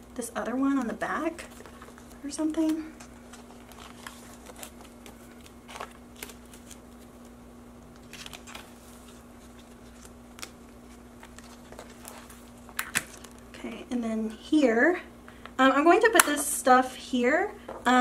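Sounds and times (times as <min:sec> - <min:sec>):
faint steady hum: 0:00.0 - 0:18.0
plastic pages rustling: 0:00.7 - 0:07.4, 0:08.0 - 0:13.5.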